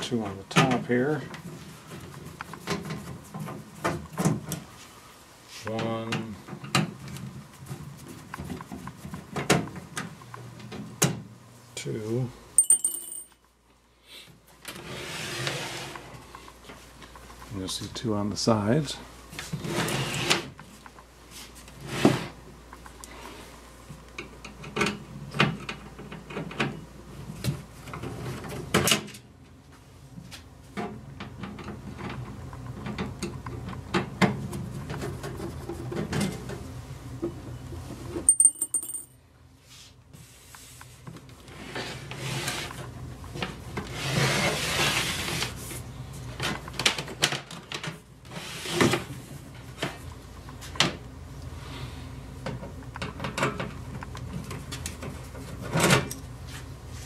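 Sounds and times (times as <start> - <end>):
handling noise: 12.6 - 13.4, 38.2 - 39.1.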